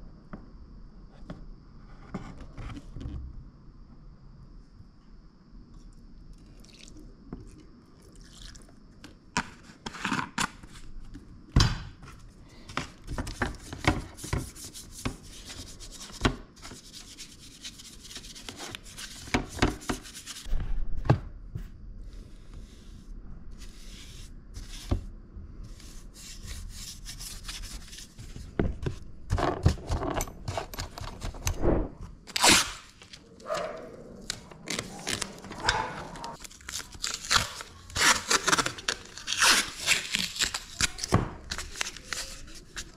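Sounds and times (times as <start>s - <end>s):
masking tape pulled off roll: 32.3s - 33.1s.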